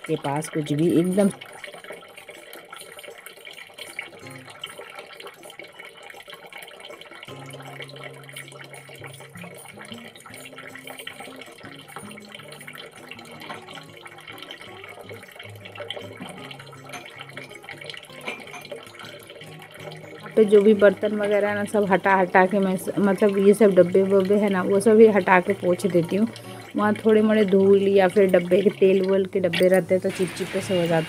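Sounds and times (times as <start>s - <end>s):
steel containers clinking: 0.0s - 6.1s, 7.3s - 31.0s
faint watery hiss: 25.4s - 31.0s.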